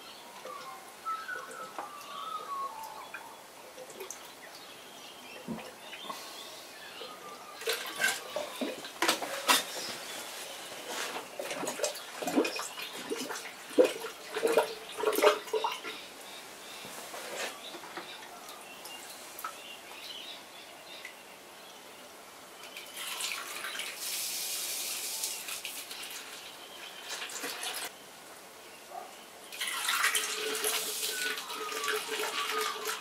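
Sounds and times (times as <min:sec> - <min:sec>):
birds chirping faintly: 0:00.0 - 0:33.0
liquid splashing and trickling: 0:11.3 - 0:16.0, 0:22.7 - 0:27.9, 0:29.5 - 0:33.0.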